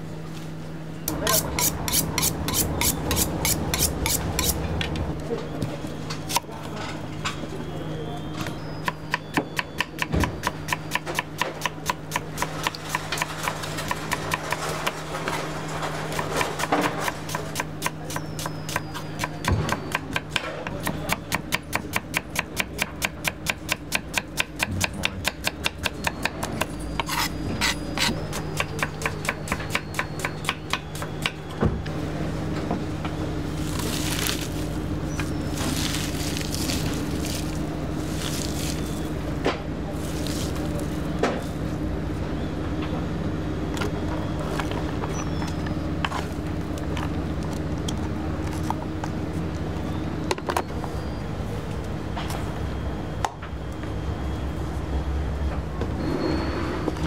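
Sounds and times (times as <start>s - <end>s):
knife slicing onion on wood: 1.1s - 4.6s, 8.9s - 15.0s, 16.1s - 31.4s, 40.0s - 41.6s
hands rustling sliced onion: 33.4s - 39.3s, 39.9s - 41.7s.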